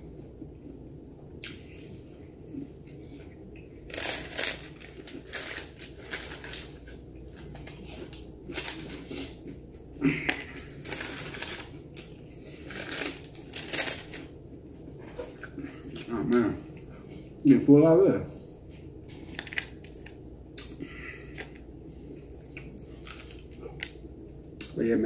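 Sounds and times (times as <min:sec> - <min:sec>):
crunching and chewing fried chicken: 0:01.4 - 0:16.9, 0:19.1 - 0:24.8
paper wrappers crinkling: 0:03.9 - 0:09.4, 0:10.1 - 0:14.3, 0:19.2 - 0:20.2.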